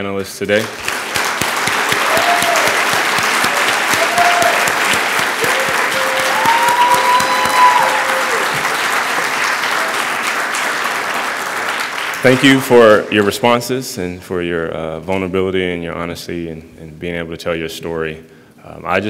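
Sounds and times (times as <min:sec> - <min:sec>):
audience applauding: 0:00.6 - 0:13.3.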